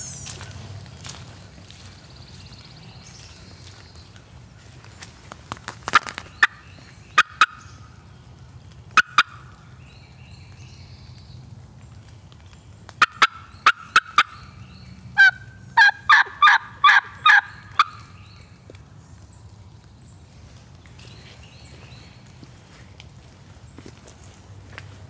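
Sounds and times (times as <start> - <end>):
turkey call yelps: 7.2 - 7.6, 9.0 - 9.5, 13.0 - 14.5, 15.2 - 18.1.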